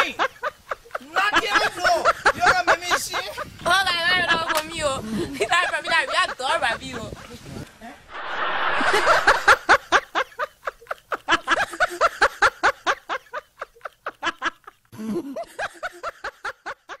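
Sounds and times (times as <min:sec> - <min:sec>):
person laughing hard: 0:08.8 - 0:17.0.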